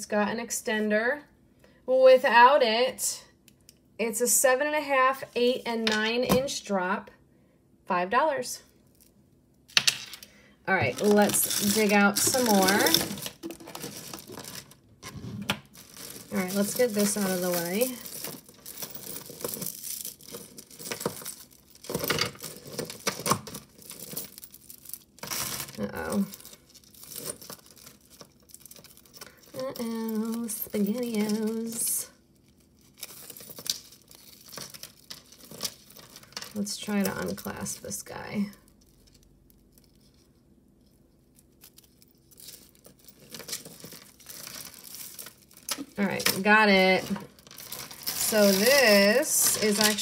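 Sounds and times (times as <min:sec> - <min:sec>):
rustling and crinkling: 0:10.0 - 0:50.0
beads and chains clinking: 0:10.8 - 0:14.8, 0:15.7 - 0:32.0, 0:32.7 - 0:40.1, 0:41.4 - 0:50.0.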